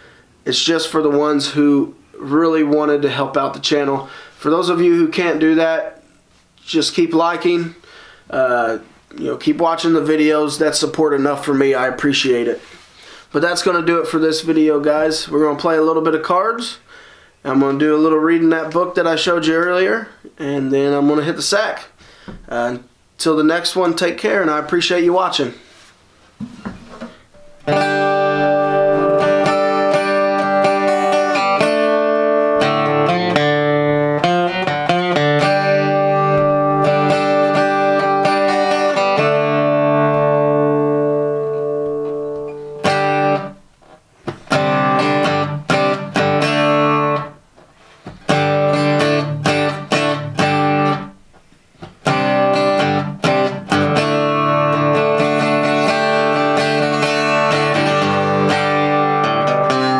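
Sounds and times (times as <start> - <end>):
acoustic guitar strumming chords: 27.0 - 43.6, 44.3 - 47.4, 48.1 - 51.2, 52.0 - 59.9.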